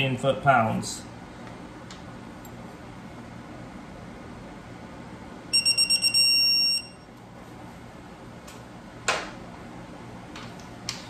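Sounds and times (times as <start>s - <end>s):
torque wrench beeping: 5.5s - 7.0s.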